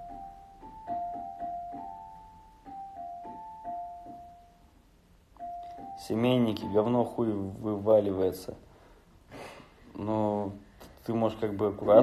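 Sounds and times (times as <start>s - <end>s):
slow keyboard melody: 0.0s - 7.9s.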